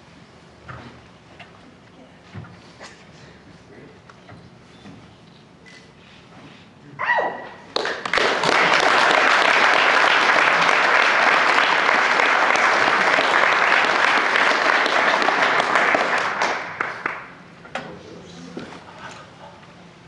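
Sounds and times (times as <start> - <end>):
audience applauding: 7.8 - 17.4.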